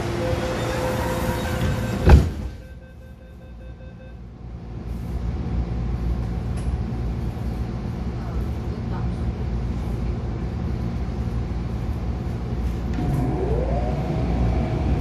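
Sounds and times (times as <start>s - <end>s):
train doors sliding shut: 0.0s - 2.6s
train low rumble: 0.0s - 15.0s.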